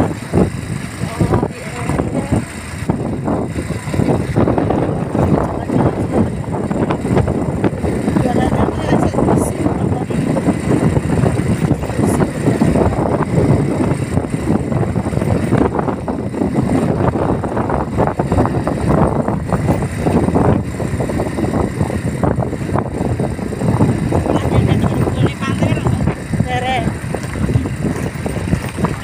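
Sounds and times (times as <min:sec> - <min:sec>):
vehicle rumble: 0:00.0 - 0:29.0
wind buffeting microphone: 0:00.0 - 0:29.0.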